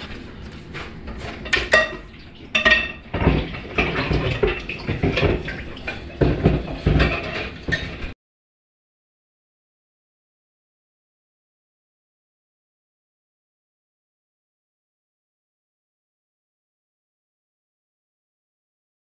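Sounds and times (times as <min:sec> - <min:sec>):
dishes and cutlery clinking: 0:00.0 - 0:08.2.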